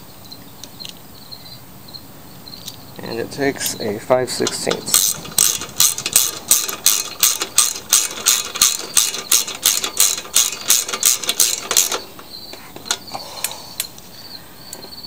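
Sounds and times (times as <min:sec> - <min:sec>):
ratchet wrench clicking: 0:04.4 - 0:12.1.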